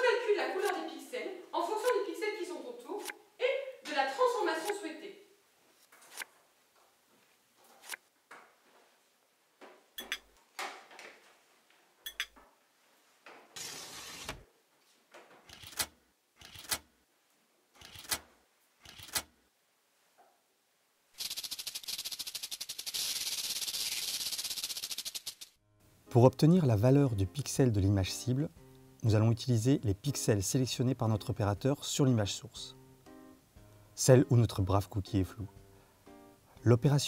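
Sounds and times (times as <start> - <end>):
short hiss: 21.2 - 25.5.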